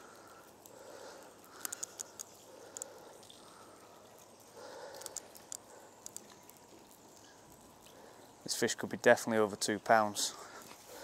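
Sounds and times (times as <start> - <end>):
light ticks and clicks: 0.0 - 8.6
faint steady hiss: 0.0 - 11.0.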